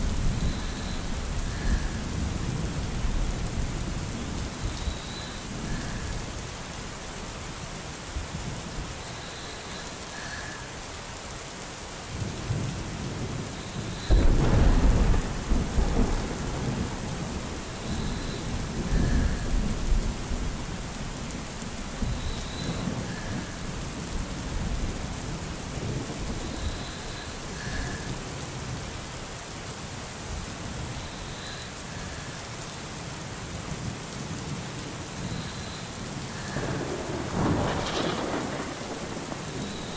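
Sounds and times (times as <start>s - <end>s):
steady rain: 0.0s - 39.9s
rolling thunder: 13.2s - 28.2s, 36.3s - 39.9s.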